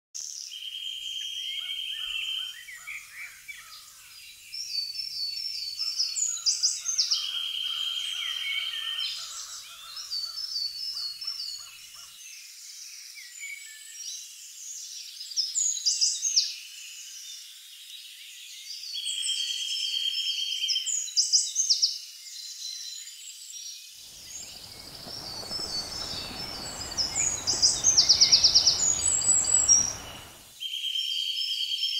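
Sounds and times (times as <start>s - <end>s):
birds singing: 24.1s - 30.5s
fainter lower bird calls: 24.1s - 30.5s
buzzy bird trill: 24.2s - 30.5s.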